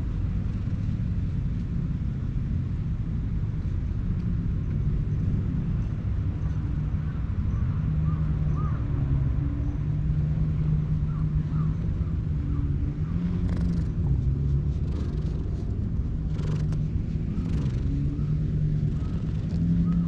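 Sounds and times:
cat purring: 0:13.1 - 0:20.0.

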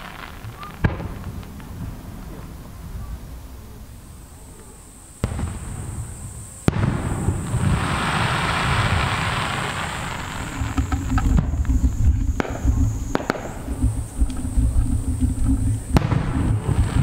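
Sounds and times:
fireworks bangs: 0:00.0 - 0:17.0
fireworks crackling fizz: 0:00.0 - 0:17.0
low rumble: 0:09.5 - 0:17.0.

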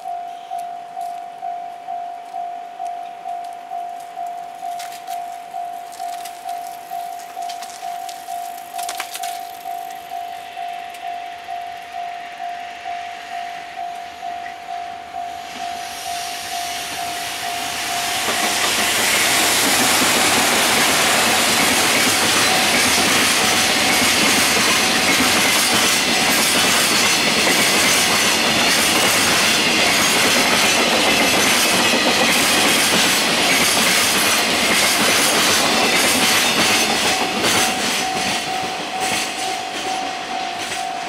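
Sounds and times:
train wheels on rails: 0:00.0 - 0:41.0
clickety-clack over rail joints: 0:18.2 - 0:41.0.

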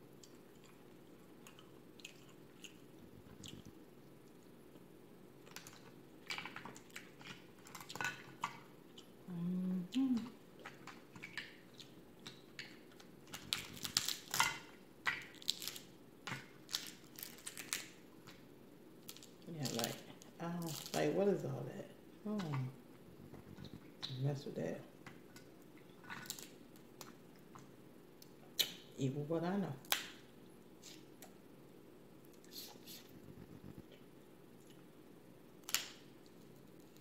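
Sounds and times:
crab shells crackling and snapping: 0:05.4 - 0:09.2, 0:10.6 - 0:18.4, 0:19.0 - 0:21.1, 0:25.0 - 0:28.8, 0:29.8 - 0:30.3, 0:35.6 - 0:37.0.

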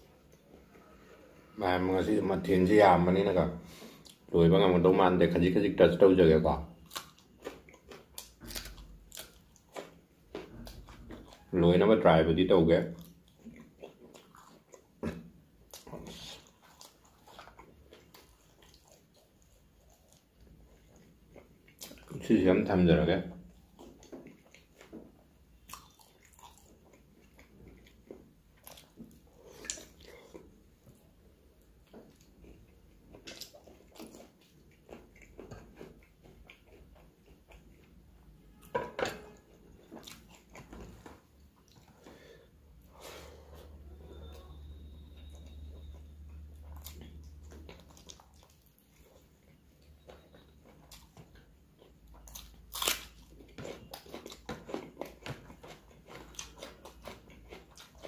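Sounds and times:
chewing and lip smacks: 0:06.8 - 0:11.5, 0:12.9 - 0:22.2, 0:23.4 - 0:38.0, 0:39.7 - 0:42.1, 0:45.2 - 0:58.0.

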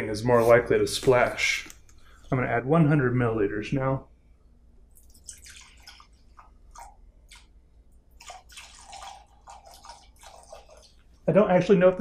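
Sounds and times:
water drips: 0:04.9 - 0:11.3
liquid pouring into water: 0:05.0 - 0:11.2.

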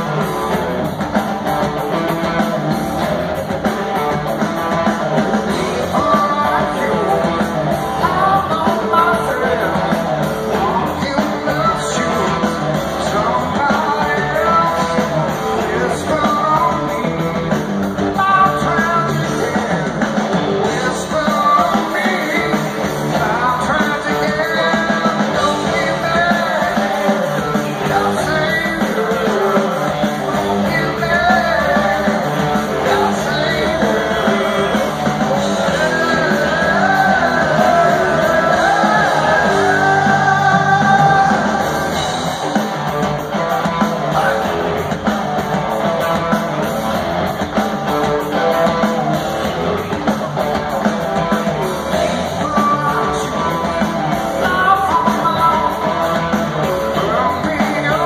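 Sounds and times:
lead vocal singing: 0:00.0 - 0:47.2, 0:50.6 - 0:58.0
electric guitars: 0:00.0 - 0:58.0.

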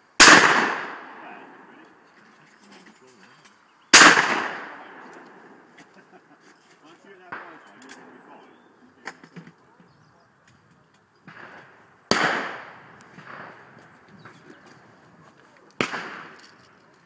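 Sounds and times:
shotgun shots echoing: 0:00.2 - 0:01.8, 0:03.9 - 0:05.7, 0:07.3 - 0:08.2, 0:11.2 - 0:13.8, 0:15.8 - 0:16.7.

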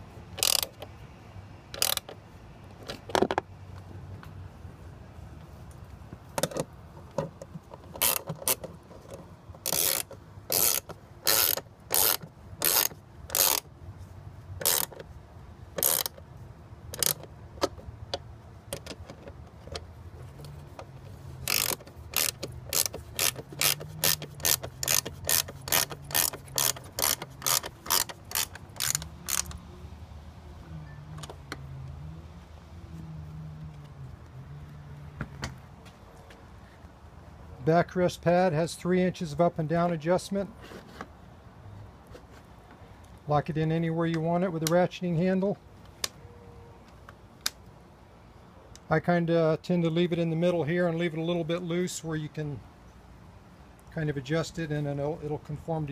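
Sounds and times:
ratcheting wrench clicking: 0:00.4 - 0:00.9, 0:01.7 - 0:02.2, 0:07.9 - 0:08.7, 0:09.6 - 0:13.7, 0:14.6 - 0:15.0, 0:15.8 - 0:16.2, 0:16.9 - 0:17.7, 0:21.4 - 0:29.6.

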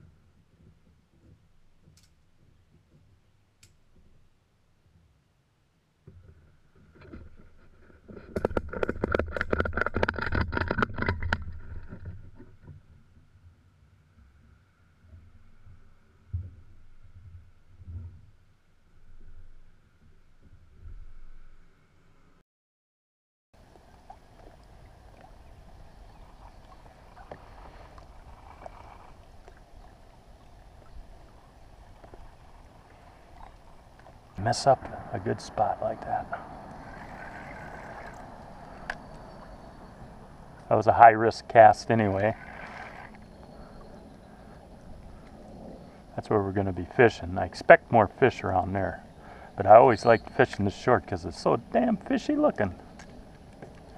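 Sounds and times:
small waves lapping against hull: 0:06.0 - 0:21.5, 0:23.6 - 0:53.9
low steady rumble: 0:23.6 - 0:53.9.

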